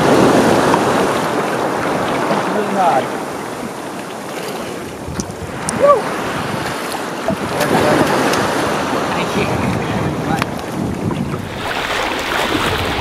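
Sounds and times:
water splashing: 0:00.0 - 0:09.8, 0:10.5 - 0:13.0
surf washing: 0:00.0 - 0:13.0
wind on microphone: 0:04.5 - 0:13.0
person whooping: 0:05.7 - 0:06.1.

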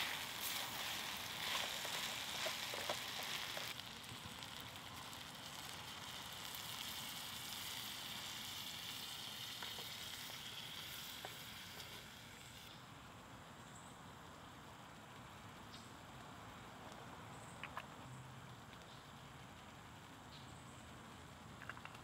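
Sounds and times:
food sizzling in frying pan: 0:00.0 - 0:12.7.

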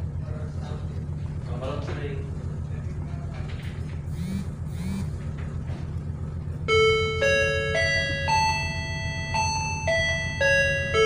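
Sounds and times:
ship engine droning: 0:00.0 - 0:11.0
bell-like announcement chime: 0:06.7 - 0:11.0.

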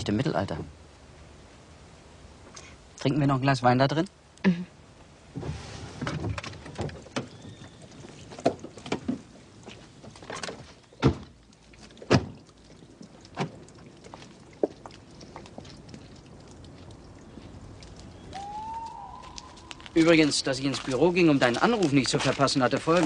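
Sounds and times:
footsteps: 0:14.0 - 0:23.0.

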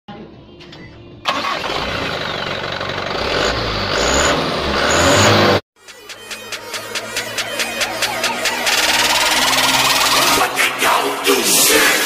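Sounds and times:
diesel truck engine revving: 0:01.3 - 0:05.6
high turbo whine: 0:02.0 - 0:10.8.

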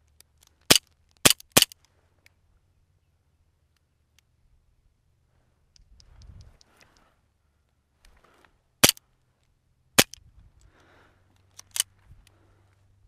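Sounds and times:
faint rustling: 0:05.2 - 0:09.6.

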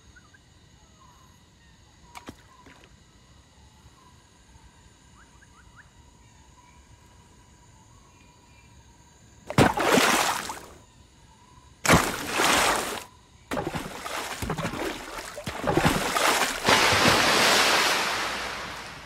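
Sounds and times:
water sloshing: 0:09.5 - 0:10.8, 0:11.8 - 0:19.0
water splashing: 0:09.5 - 0:10.8, 0:11.9 - 0:19.0.

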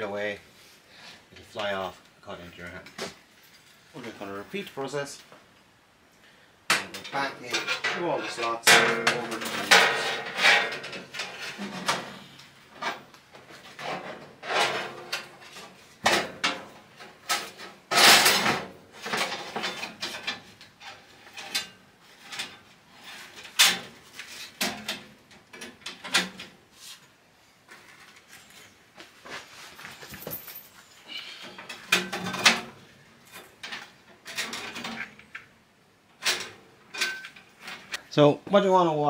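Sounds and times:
bandsaw blade clattering and scraping: 0:06.8 - 0:12.0, 0:17.3 - 0:23.8.

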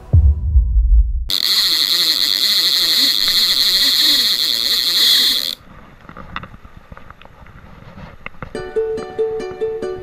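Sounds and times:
high-pitched buzz: 0:01.3 - 0:05.6.

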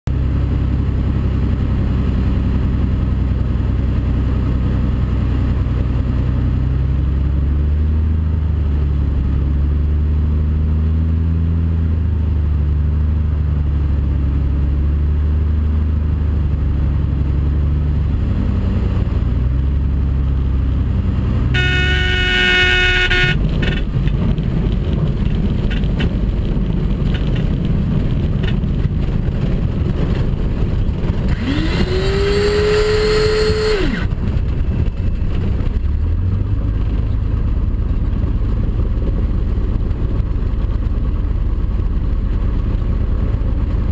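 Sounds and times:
airplane engine and propeller: 0:00.1 - 0:43.9
wheels rumbling on grass: 0:15.6 - 0:43.9
stall warning horn: 0:21.6 - 0:23.4, 0:31.3 - 0:34.1.

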